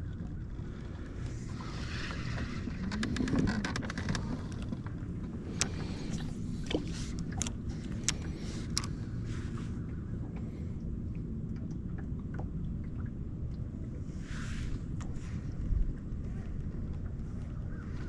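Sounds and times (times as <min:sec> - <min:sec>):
wind on microphone: 0:00.0 - 0:09.8
boat rumbling on water: 0:00.0 - 0:18.0.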